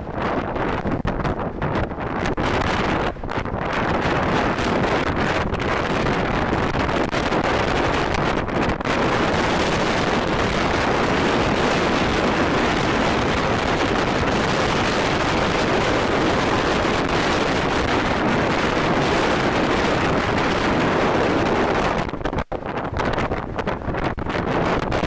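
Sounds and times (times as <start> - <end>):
strong wind on microphone: 0.0 - 25.0.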